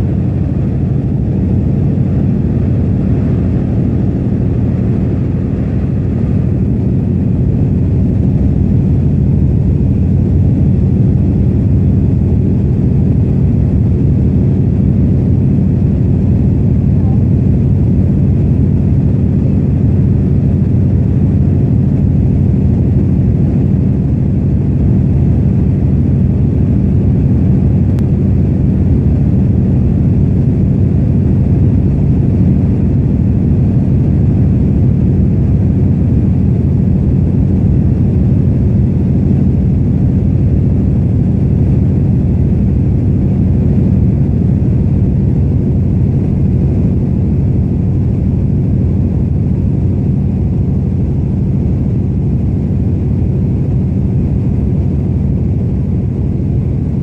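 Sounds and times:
aircraft engine droning: 0:00.0 - 0:57.0.

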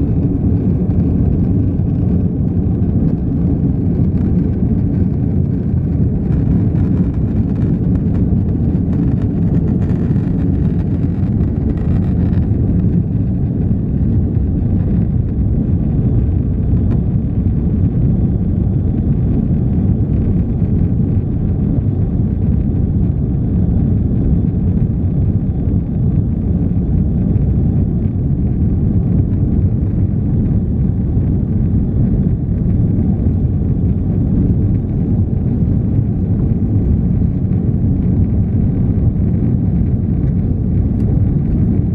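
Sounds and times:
jet engine cabin rumble: 0:00.0 - 0:41.9.

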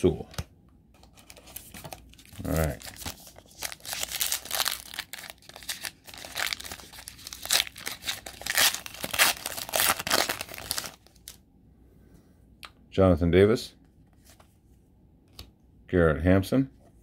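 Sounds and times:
foil wrapper crinkling and tearing: 0:01.6 - 0:11.4.

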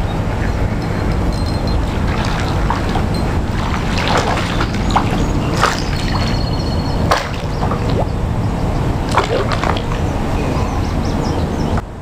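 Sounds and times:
steady low rumble: 0:00.0 - 0:12.0
fish splashing in water: 0:01.6 - 0:10.5.

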